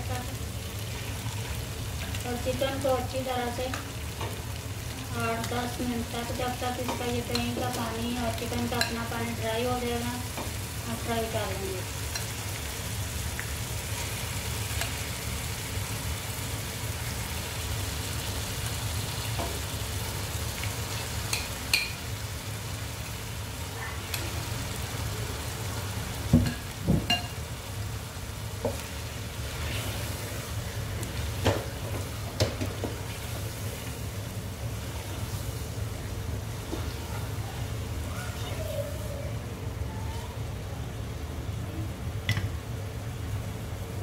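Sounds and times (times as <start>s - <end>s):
chicken sizzling in hot oil: 0.0s - 39.3s
stirring with wooden spatula: 28.6s - 34.1s.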